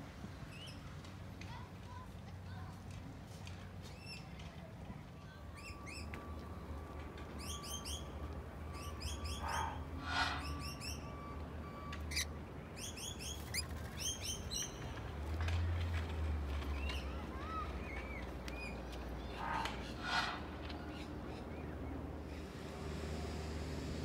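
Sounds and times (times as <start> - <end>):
parrot chirping: 8.7 - 11.3, 12.1 - 14.8.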